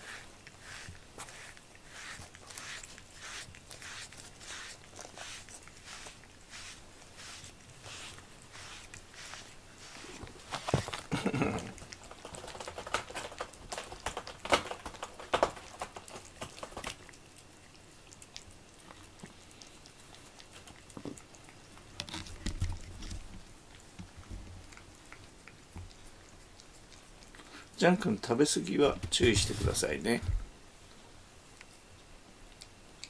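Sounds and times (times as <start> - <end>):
brush scraping through fur: 0.0 - 11.1, 29.2 - 30.0
cat eating crunching: 0.0 - 30.0, 30.8 - 33.0.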